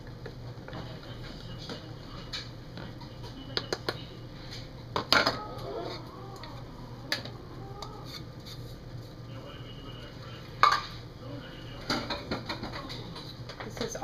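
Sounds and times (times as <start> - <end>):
bowls and utensil clattering: 11.8 - 14.0.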